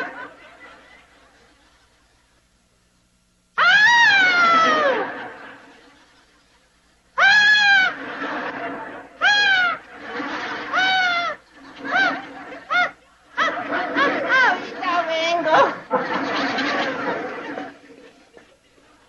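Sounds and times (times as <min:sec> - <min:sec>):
man wailing in falsetto: 0:03.6 - 0:05.1, 0:07.2 - 0:08.0.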